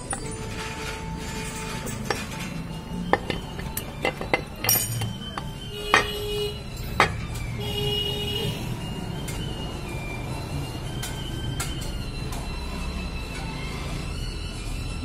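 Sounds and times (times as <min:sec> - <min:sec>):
metal parts clinking: 0:00.0 - 0:07.3.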